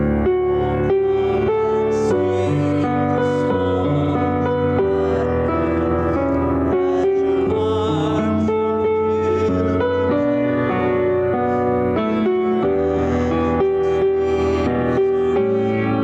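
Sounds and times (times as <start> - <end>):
slow keyboard music: 0.0 - 16.0.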